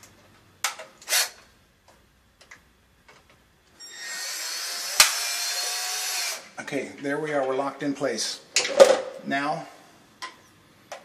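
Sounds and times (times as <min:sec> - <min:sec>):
cordless drill driving screw: 0:03.8 - 0:06.5.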